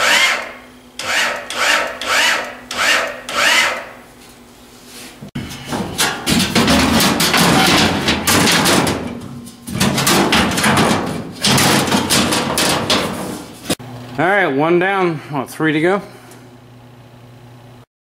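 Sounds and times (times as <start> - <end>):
steel sheet rattling and clanking: 5.4 - 13.8.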